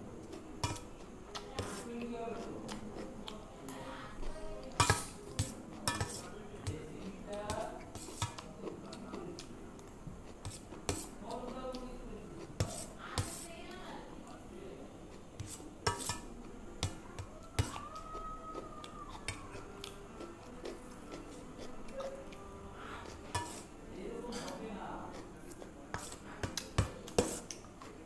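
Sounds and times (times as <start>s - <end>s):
spoon clinking in metal bowl: 5.9s - 6.3s.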